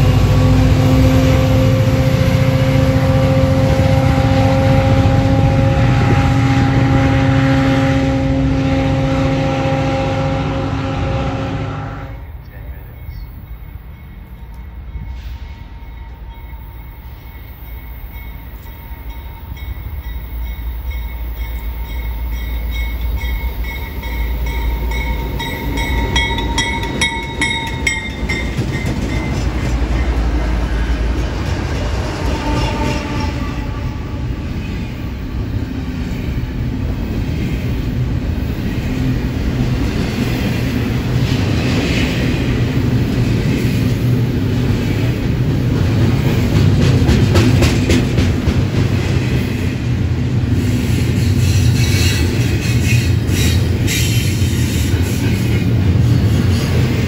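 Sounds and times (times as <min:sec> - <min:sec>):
freight train passing: 0:00.0 - 0:57.0.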